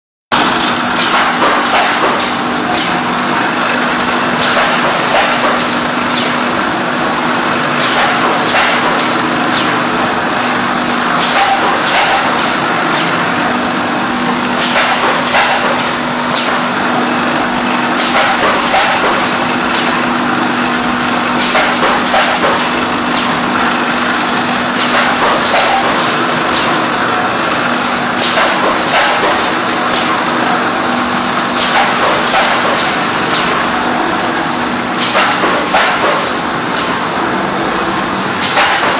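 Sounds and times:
machine hum: 0.3s - 38.9s
mechanism clicks and knocks: 0.9s - 3.0s, 7.8s - 9.8s, 11.2s - 13.3s, 14.6s - 16.7s, 18.0s - 20.0s, 24.7s - 26.9s, 28.2s - 30.2s, 31.5s - 33.6s, 35.0s - 37.0s, 38.4s - 38.9s.

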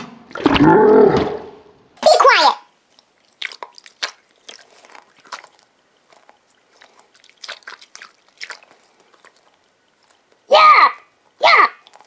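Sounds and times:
squishy toy crackles and squishes: 2.8s - 10.5s, 11.3s - 12.0s.

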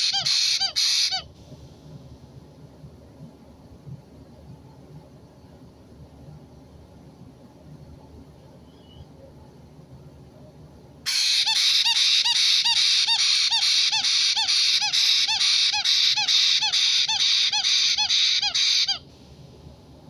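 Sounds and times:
parrot chick begging call: 0.0s - 1.3s, 11.1s - 19.0s.

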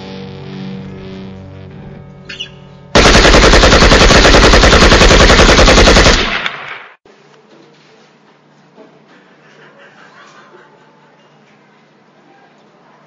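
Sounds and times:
guitar chord: 0.0s - 2.9s
machine-gun fire: 2.9s - 7.0s.

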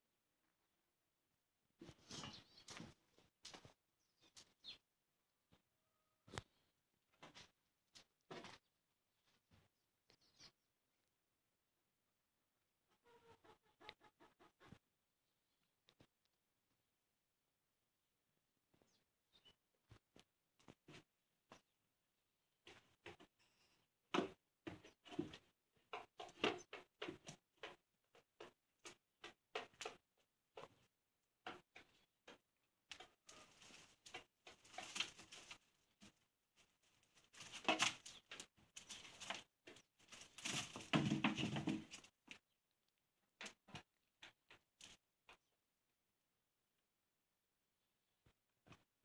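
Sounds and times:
small hooves tapping: 22.6s - 45.5s
scrabbling and rustling: 33.3s - 42.1s.

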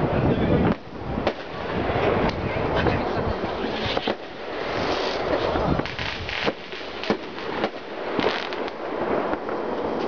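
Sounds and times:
fireworks bangs and crackles: 0.0s - 10.0s
distant fireworks bangs: 0.6s - 2.8s, 3.6s - 10.0s.

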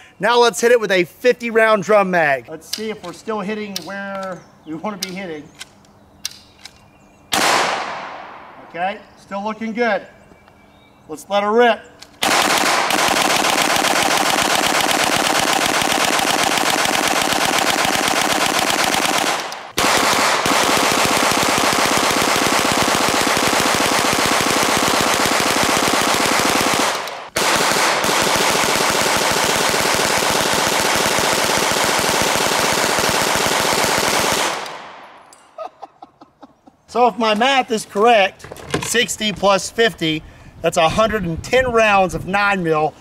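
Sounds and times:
gatling gun rapid fire: 12.2s - 34.8s.

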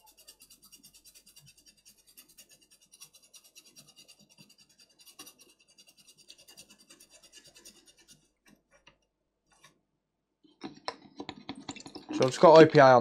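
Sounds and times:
toothbrush scrubbing circuit board: 0.0s - 8.6s.

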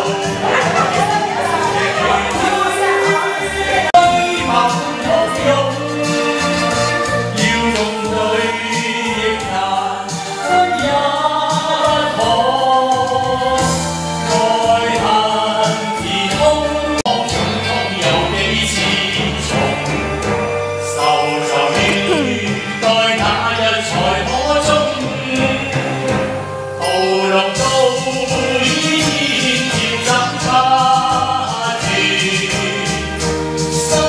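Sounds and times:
backing track with bass line: 0.0s - 26.6s
man singing karaoke: 0.0s - 34.0s.

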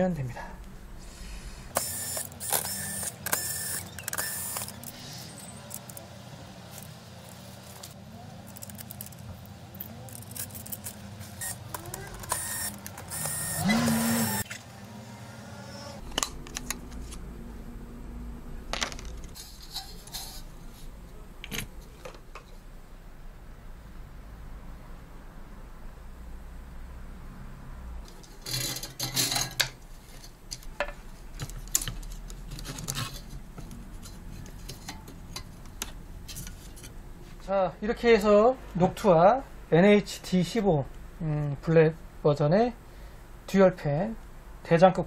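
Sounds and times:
small metal parts clinking: 8.4s - 11.0s.

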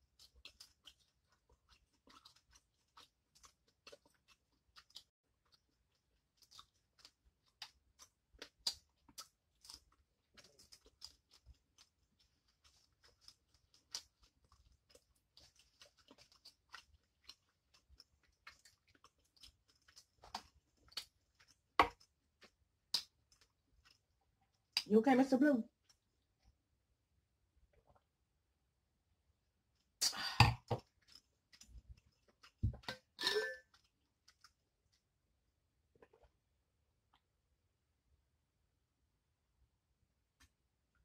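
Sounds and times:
close-up chewing and crunching: 0.0s - 24.9s, 25.7s - 26.6s, 30.7s - 35.2s.

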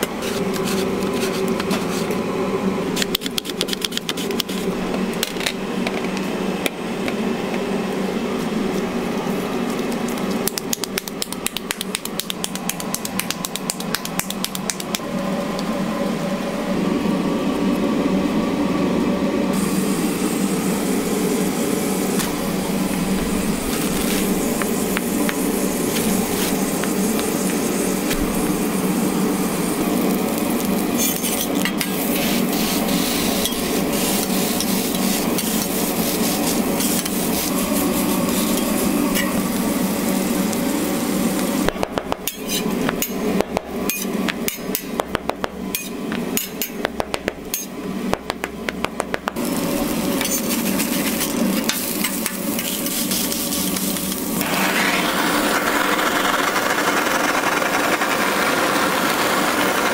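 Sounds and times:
blowtorch flame rushing: 19.4s - 41.8s, 49.3s - 59.9s
food sizzling on a griddle: 19.5s - 41.7s, 49.4s - 55.8s.

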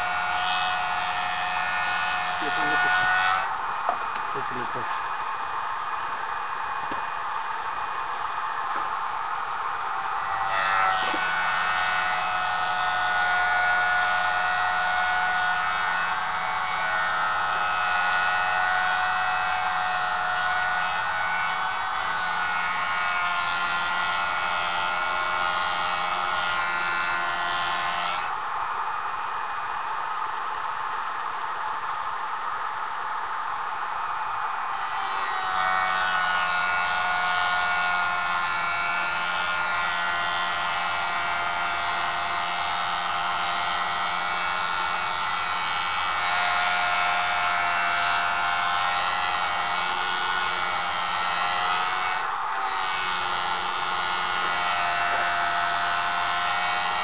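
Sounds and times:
sharpener motor humming: 0.0s - 5.4s, 49.4s - 57.0s.

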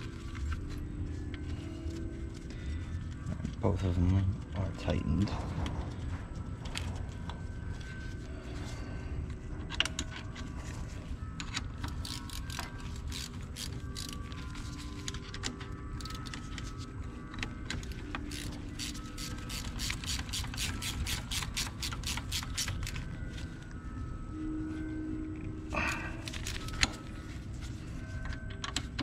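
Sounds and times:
socket ratchet clicking: 18.3s - 23.0s.

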